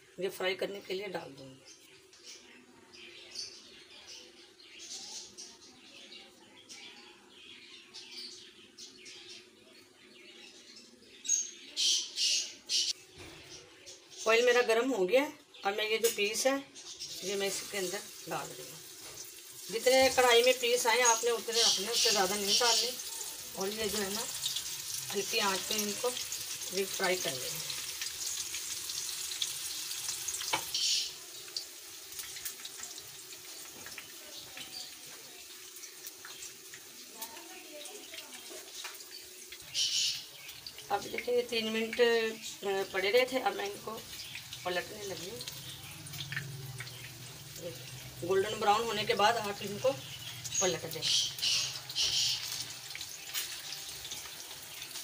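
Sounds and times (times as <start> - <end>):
birds chirping: 0.0 - 55.0
hot oil sizzling: 14.2 - 55.0.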